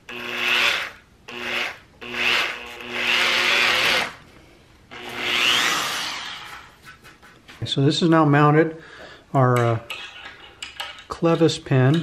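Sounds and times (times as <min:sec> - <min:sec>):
electric drill boring wood: 0:00.0 - 0:04.2, 0:04.9 - 0:06.7.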